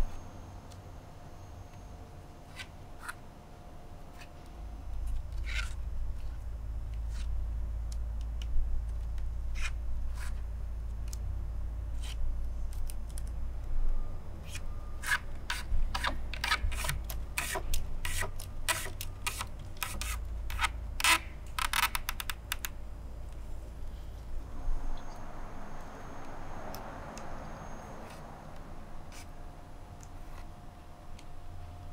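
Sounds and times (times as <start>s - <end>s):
low steady hum: 0.0s - 31.9s
cane strips scratching: 7.0s - 7.3s, 9.5s - 10.4s, 11.9s - 13.3s, 14.4s - 22.7s, 29.1s - 29.4s.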